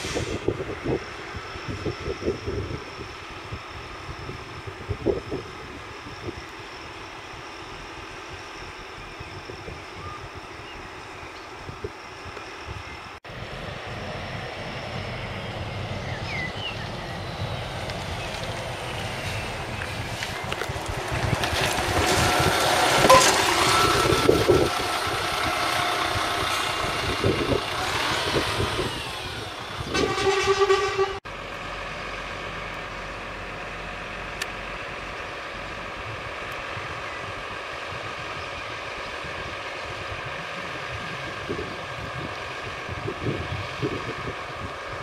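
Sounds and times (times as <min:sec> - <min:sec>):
bus driving past: 0:00.0 - 0:45.0
bus horn toot: 0:23.1 - 0:24.1, 0:29.9 - 0:31.2.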